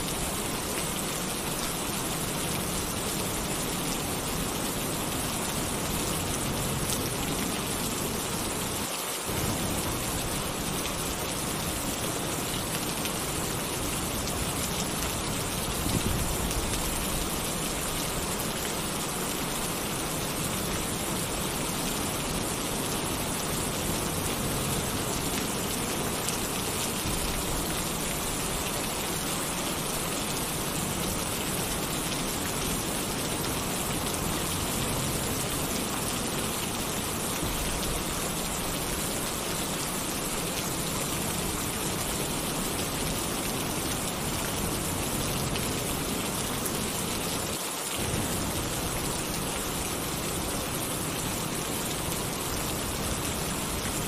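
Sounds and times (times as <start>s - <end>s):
heavy rain on a tin roof: 0.0s - 54.0s
low rumble of thunder: 48.0s - 49.1s.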